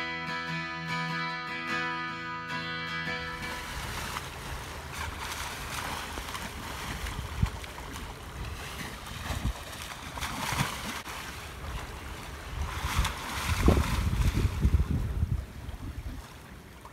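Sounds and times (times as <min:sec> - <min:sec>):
wind rumbling on microphone: 0:03.4 - 0:16.7
sea water sloshing around bow: 0:03.4 - 0:16.9.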